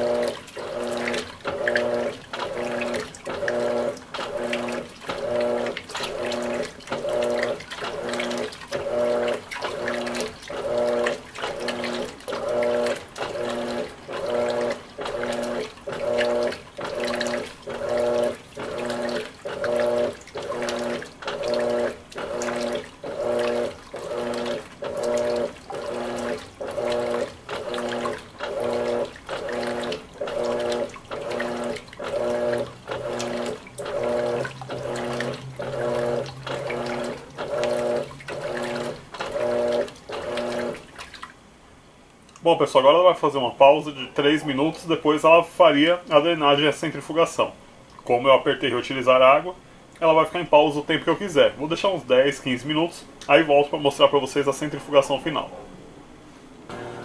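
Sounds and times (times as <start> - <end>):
washing machine motor whining: 0.0 - 41.3, 56.7 - 57.0
water sloshing: 0.0 - 43.0, 44.0 - 55.7.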